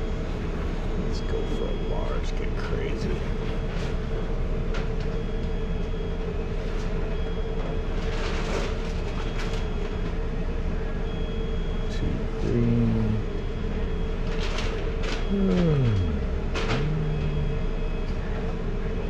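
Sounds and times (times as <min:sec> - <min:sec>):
low machinery hum: 0:00.0 - 0:19.0
mid-pitched whine: 0:00.0 - 0:19.0
low tone stepping in pitch: 0:15.3 - 0:18.3.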